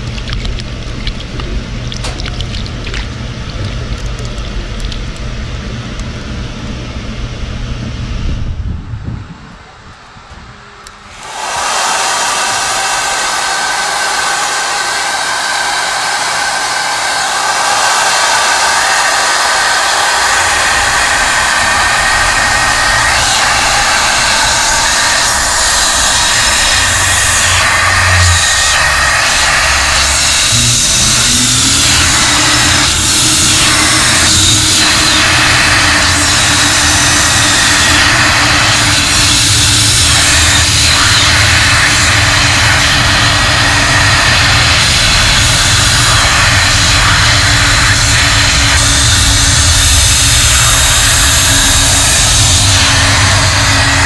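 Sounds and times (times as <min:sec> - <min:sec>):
low machine hum: 0:00.0 - 0:54.0
water jets spraying onto rug: 0:11.1 - 0:54.0
low rumble: 0:18.8 - 0:54.0
machine tones: 0:20.1 - 0:41.7.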